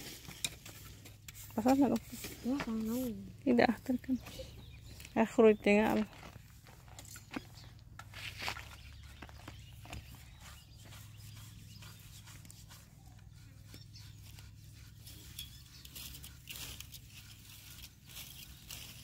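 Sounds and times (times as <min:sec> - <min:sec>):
brush scrubbing painted wood: 0:00.0 - 0:05.0, 0:09.0 - 0:19.0.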